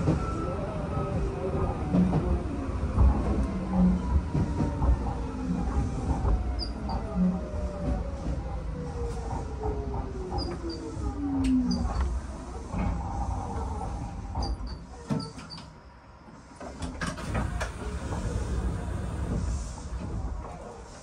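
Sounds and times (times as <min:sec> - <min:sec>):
low train rumble: 0:00.0 - 0:21.0.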